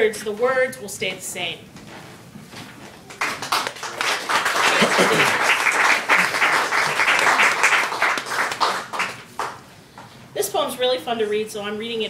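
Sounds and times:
audience applauding: 3.0s - 9.6s.

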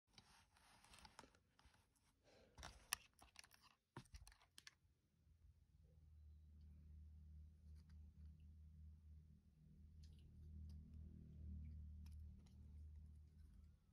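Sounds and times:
low hum: 5.6s - 13.9s.

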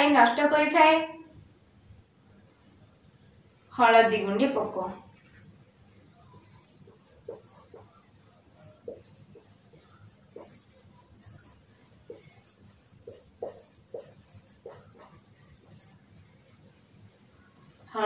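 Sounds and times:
marker squeaking on whiteboard: 6.2s - 16.0s.

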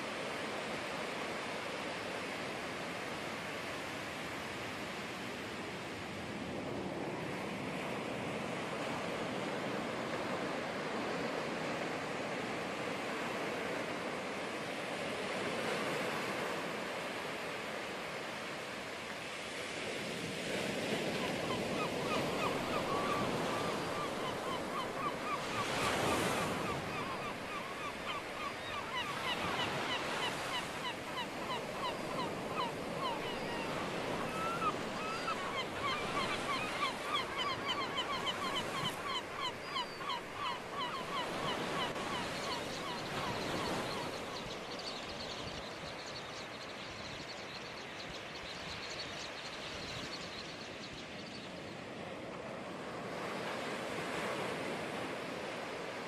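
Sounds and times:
gulls calling: 21.1s - 45.9s.

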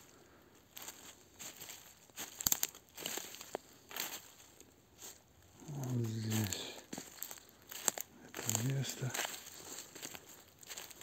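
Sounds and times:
footsteps crunching through leaves: 0.0s - 11.0s
twig snapping: 2.2s - 2.8s.

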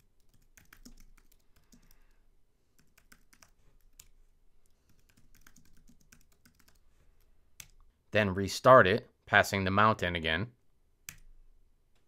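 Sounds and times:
keyboard typing: 0.0s - 2.1s, 2.8s - 7.8s, 11.0s - 11.3s.

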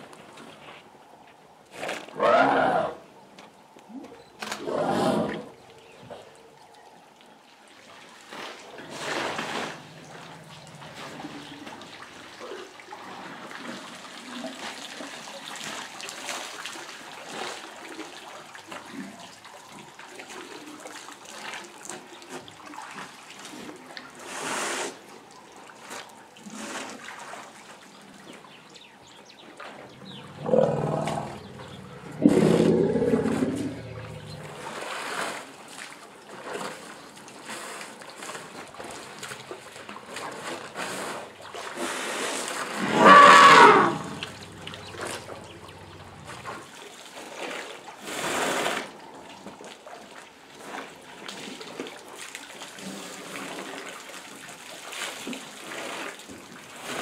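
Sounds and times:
water trickling and splashing: 5.4s - 57.0s
elephants calling: 30.0s - 34.8s, 42.8s - 46.4s.

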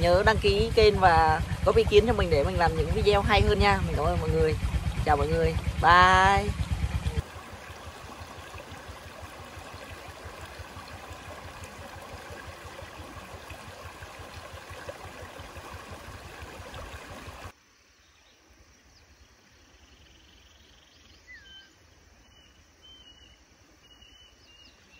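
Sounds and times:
stream splashing over rocks: 0.0s - 17.6s
bird chirps: 18.0s - 24.9s.

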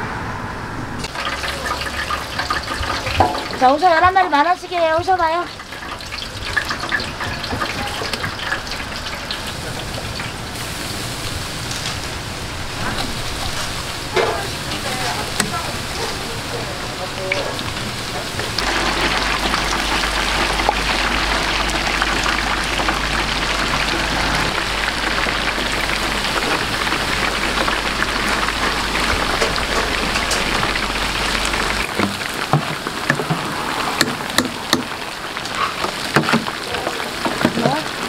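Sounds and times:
deep-frying oil sizzling: 1.0s - 38.0s.

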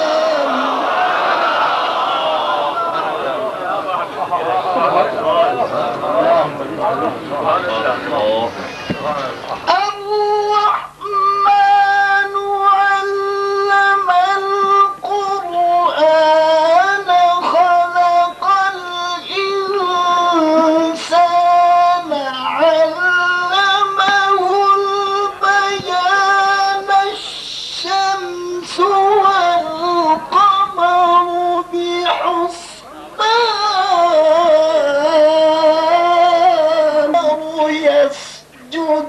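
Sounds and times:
man reciting melodically: 0.0s - 1.0s, 9.6s - 39.0s
steady low hum: 0.0s - 39.0s.

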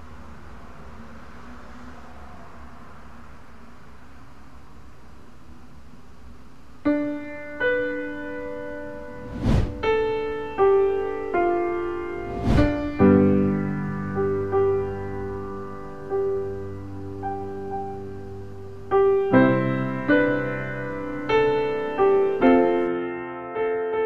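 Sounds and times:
slow piano music: 6.8s - 24.0s
piano thump: 12.3s - 13.3s.

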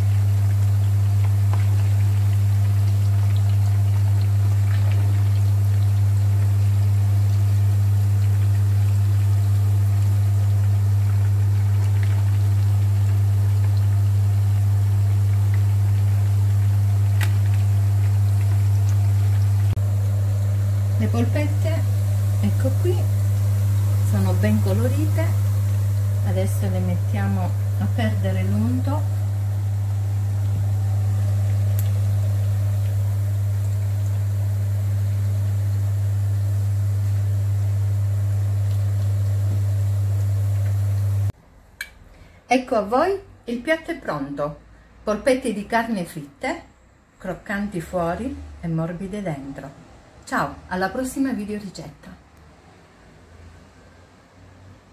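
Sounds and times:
meatballs sizzling in hot oil: 0.0s - 41.3s
loud steady low hum: 17.1s - 41.3s.

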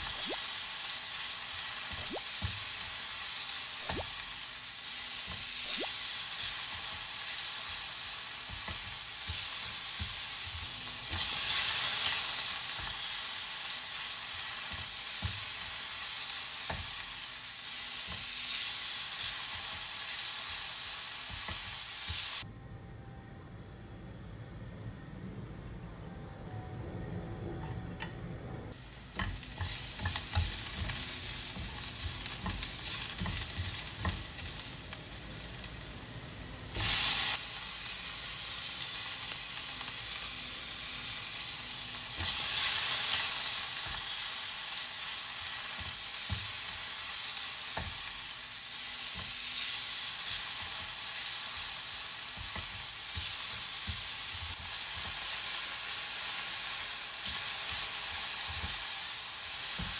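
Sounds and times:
food sizzling in hot oil: 0.0s - 22.5s, 28.7s - 59.9s
spatula stirring and tapping pan: 8.4s - 11.8s, 29.0s - 34.9s, 45.4s - 46.8s, 47.7s - 48.1s, 52.3s - 55.6s.

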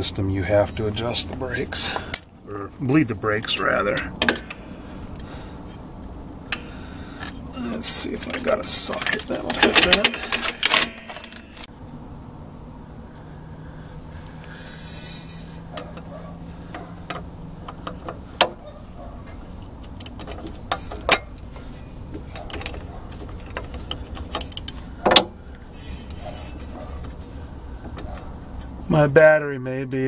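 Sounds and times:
metal hand tools clinking: 1.9s - 2.4s, 7.6s - 11.7s
sharp metal clanks: 7.9s - 11.7s.

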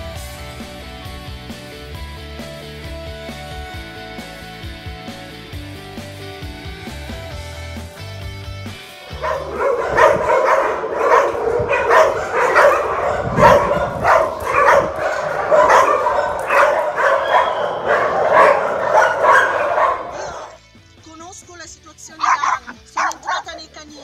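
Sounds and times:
guitar music: 0.0s - 24.0s
many dogs barking: 9.1s - 20.6s, 22.2s - 23.6s.

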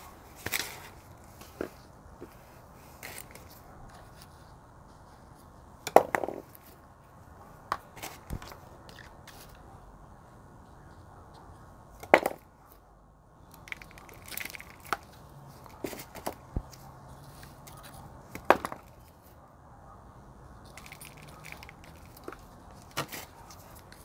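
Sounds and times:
stick working potting soil: 13.4s - 19.3s, 20.6s - 24.0s.

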